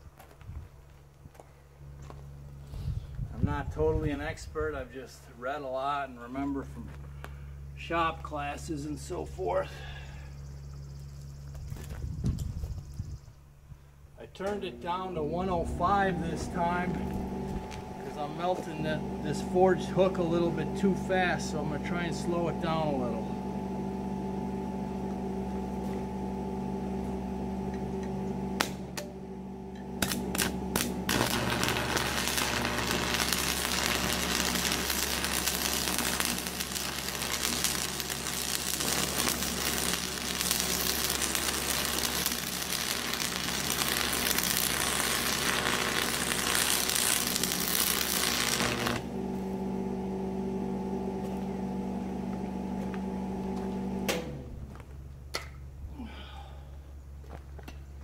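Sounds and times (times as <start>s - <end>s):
low steady hum: 0.0s - 58.0s
welding arc crackling and sizzling: 14.5s - 26.2s, 29.7s - 49.6s.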